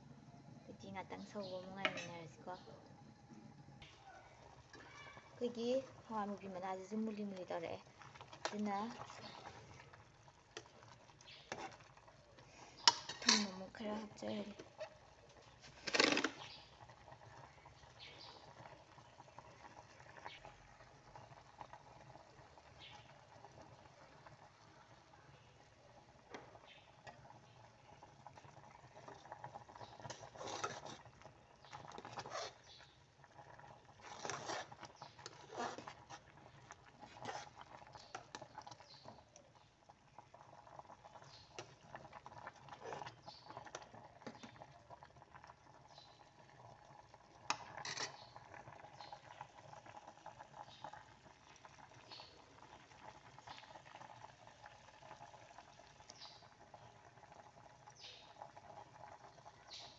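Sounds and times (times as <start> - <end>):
stew bubbling in a pot: 0.0 - 59.9
metal ladle scraping a pot: 11.4 - 11.9, 12.8 - 13.6, 29.9 - 31.1, 31.8 - 32.6, 34.0 - 36.3, 36.9 - 38.4, 47.5 - 48.3.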